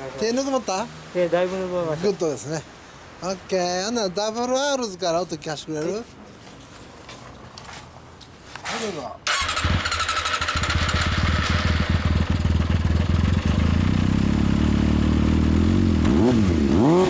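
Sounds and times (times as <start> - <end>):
motorcycle engine idling and revving: 9.3 - 17.0.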